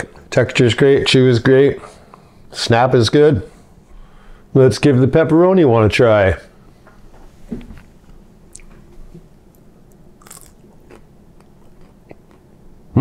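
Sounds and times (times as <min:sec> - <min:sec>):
chewing with small clicks: 0:09.5 - 0:12.5
biting into snack stick: 0:09.9 - 0:12.4.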